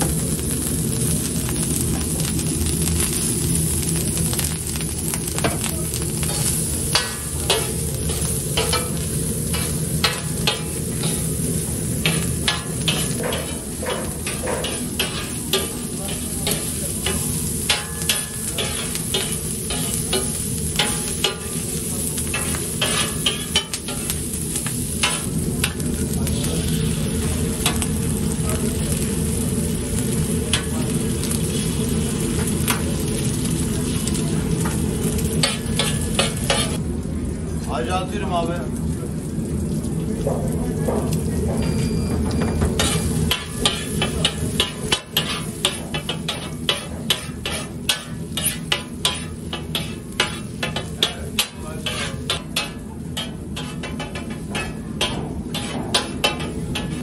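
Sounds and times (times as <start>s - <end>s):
sausage sizzling on griddle: 0.0s - 57.0s
metal spatula clacking and scraping: 42.8s - 57.0s.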